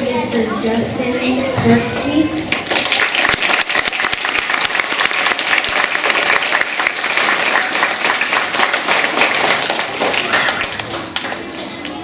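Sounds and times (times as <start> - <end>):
children applauding: 2.5 - 11.4.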